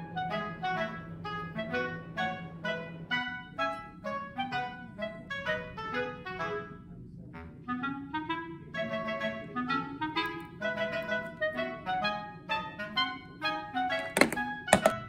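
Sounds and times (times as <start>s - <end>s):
light melodic background music: 7.7s - 15.0s.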